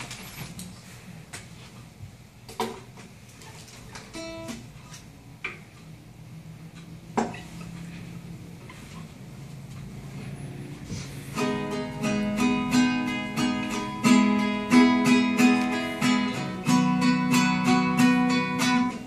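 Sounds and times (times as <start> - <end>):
guitar strums: 4.0 - 5.0, 10.9 - 19.0
plucked guitar note ringing: 11.4 - 19.0.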